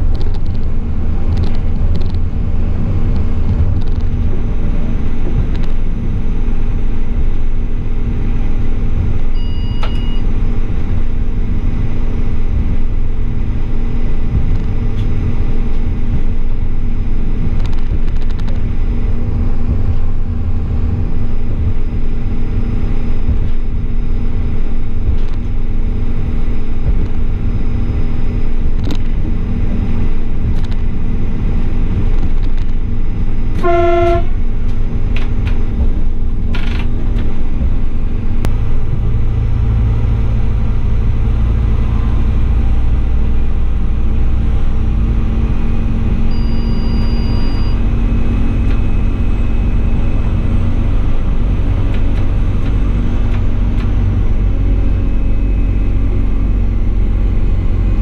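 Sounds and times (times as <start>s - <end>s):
train wheels rumbling on rail: 0.0s - 58.0s
train horn toot: 33.6s - 34.4s.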